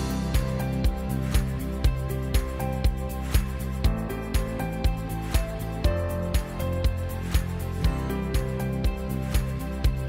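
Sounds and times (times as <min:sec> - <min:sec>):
background music with steady beat: 0:00.0 - 0:10.0.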